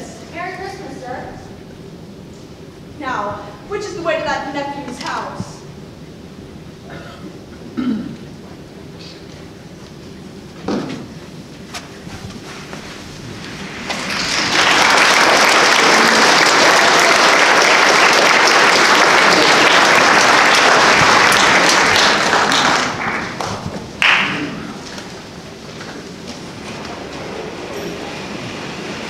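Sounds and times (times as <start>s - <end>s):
audience applauding: 13.6s - 25.9s.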